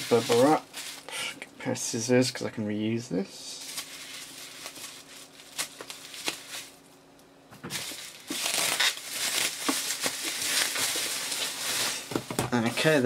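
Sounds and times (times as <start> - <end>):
bubble wrap crinkling: 0.0 - 1.2, 3.6 - 7.0, 7.7 - 13.0.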